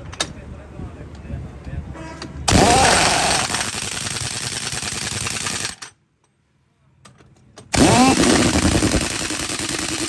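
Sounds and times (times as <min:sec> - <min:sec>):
impact wrench whine: 0:02.5 - 0:05.9, 0:07.7 - 0:10.0
pneumatic impact wrench hammering: 0:02.5 - 0:05.9, 0:07.6 - 0:10.0.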